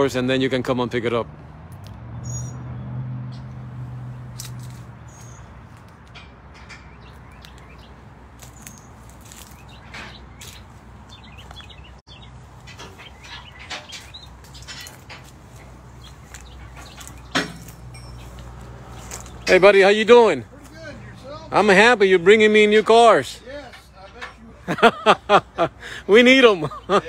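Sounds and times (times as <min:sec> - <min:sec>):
high chirps and clicks: 0:06.6 - 0:14.9.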